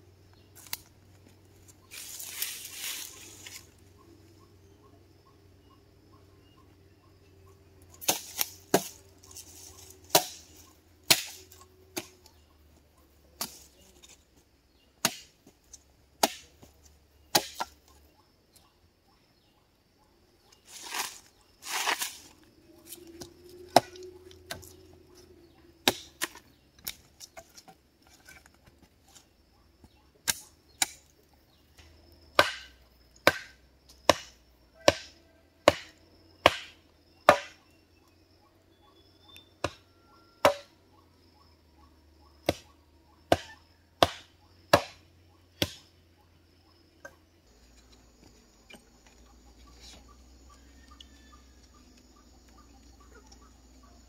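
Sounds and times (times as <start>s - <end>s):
wood chopping blows: 10.0s - 12.2s, 15.0s - 15.5s, 16.2s - 16.7s, 17.3s - 17.8s, 32.4s - 37.6s, 40.4s - 40.7s, 43.3s - 45.0s, 45.6s - 45.9s.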